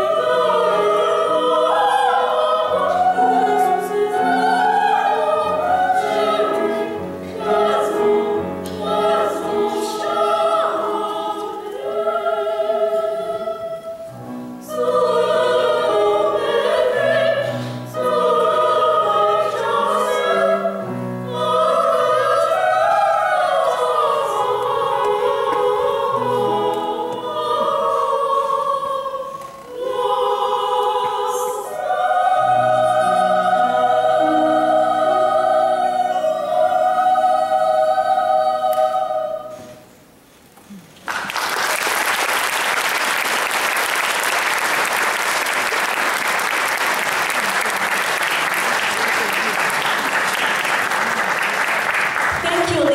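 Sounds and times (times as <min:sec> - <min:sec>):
women singing operatically: 0:00.0 - 0:14.0, 0:14.6 - 0:39.6
singers breathing: 0:17.5 - 0:17.9.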